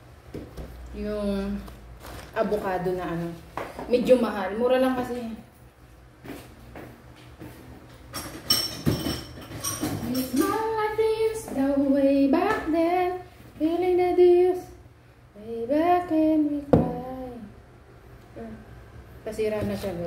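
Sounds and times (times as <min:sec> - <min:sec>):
woman singing drawn-out notes: 0:15.4 - 0:17.6.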